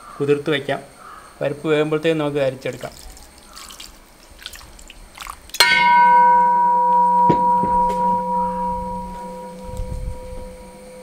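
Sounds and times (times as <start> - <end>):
brass vessel ringing like a bell: 5.6 - 11.0.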